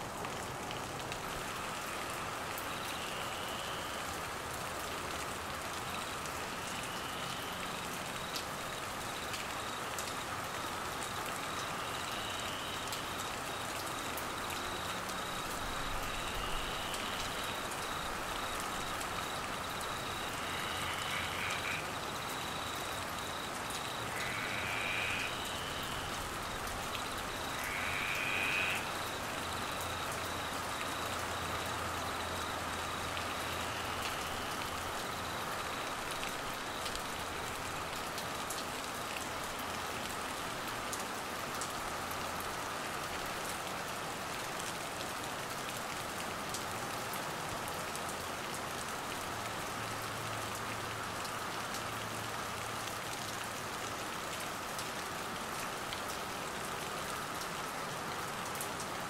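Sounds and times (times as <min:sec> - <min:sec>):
heavy rain pattering: 0:00.0 - 0:59.0
crickets chirring: 0:06.7 - 0:38.0.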